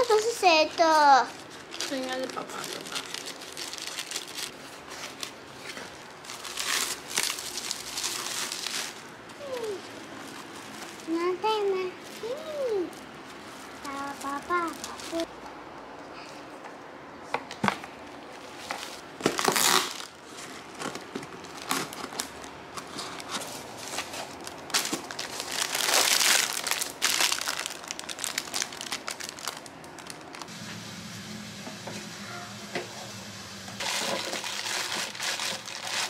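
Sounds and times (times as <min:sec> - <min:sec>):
frozen fries rustling: 0:00.0 - 0:15.3, 0:18.4 - 0:30.5, 0:33.8 - 0:36.0
plastic packaging crinkling: 0:01.2 - 0:15.3, 0:18.4 - 0:30.5, 0:33.8 - 0:36.0
steady low hum: 0:27.6 - 0:34.1.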